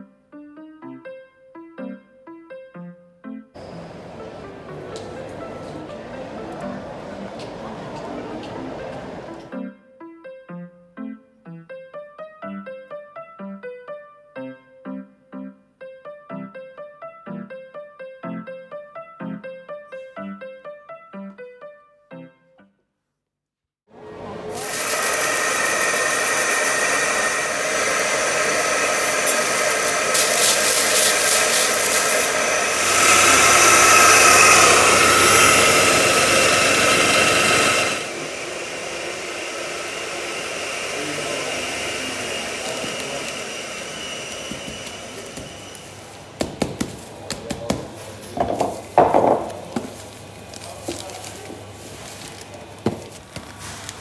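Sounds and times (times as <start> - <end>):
coffee grinder whining: 24.2 - 46.4, 48.4 - 53.2
handling rustles: 49.8 - 54.0.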